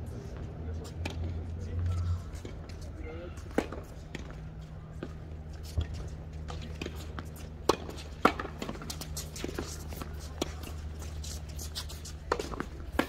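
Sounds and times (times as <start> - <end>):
tennis balls bouncing on court: 3.4 - 13.0
tennis balls struck by rackets: 3.4 - 13.0.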